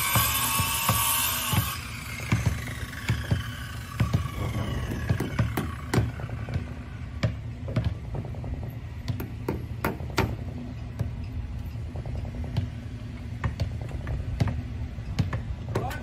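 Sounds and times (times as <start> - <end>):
steady low hum: 0.0 - 16.0
hammering on wooden boat hull: 5.0 - 11.2.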